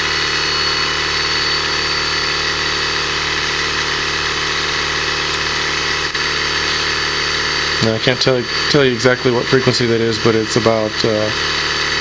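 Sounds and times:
high-pitched electronic whine: 0.0 - 12.0
vacuum pump running: 0.0 - 12.0.

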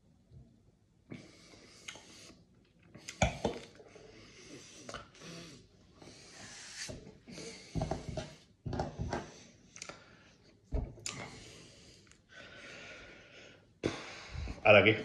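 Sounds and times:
lip smacks: 1.8 - 3.8, 4.8 - 5.2, 9.7 - 10.0, 11.0 - 11.3
breathing through nose: 11.1 - 14.6.

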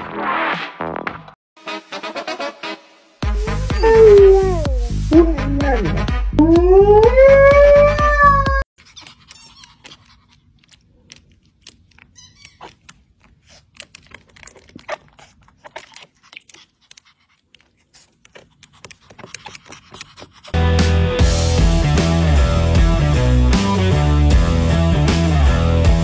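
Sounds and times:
pounding music beat: 1.7 - 8.6, 20.6 - 26.0
dog howling: 3.4 - 8.7.

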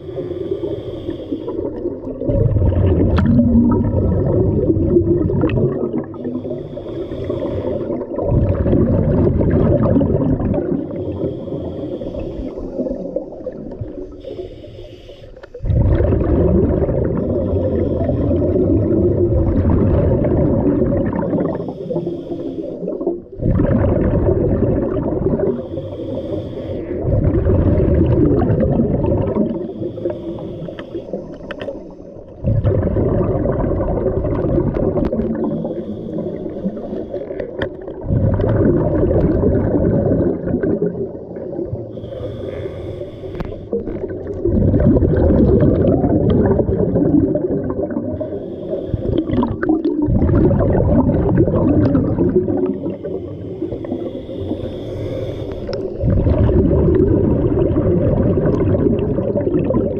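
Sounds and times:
diver inhaling through regulator: 0.0 - 2.9, 5.9 - 19.5, 20.4 - 23.4, 24.2 - 32.4, 34.3 - 40.4, 41.1 - 44.3, 48.0 - 57.7
burble of exhaled bubbles: 1.5 - 14.2, 15.4 - 22.0, 22.8 - 42.7, 43.4 - 59.9.

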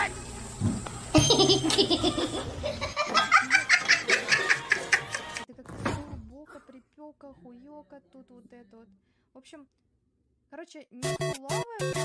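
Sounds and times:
person laughing: 1.2 - 5.4.

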